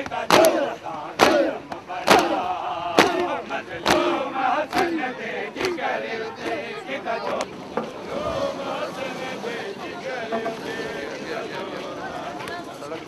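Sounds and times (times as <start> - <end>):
unison chest-beating slaps: 0.0 - 6.6
men chanting a lament: 0.0 - 13.0.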